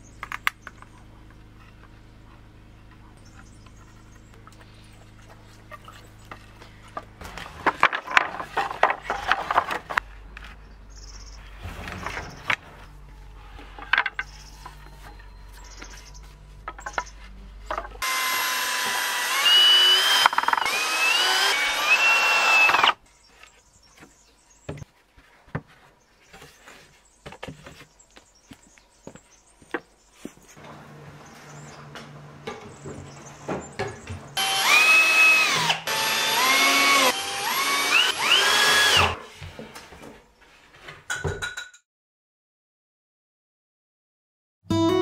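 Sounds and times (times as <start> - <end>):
cordless drill driving screws: 18.0 - 23.0, 34.4 - 39.2.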